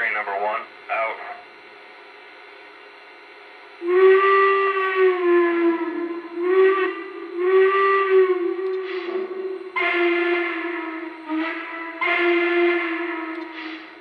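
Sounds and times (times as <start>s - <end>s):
toy steam whistle blasts: 3.8s - 14.0s.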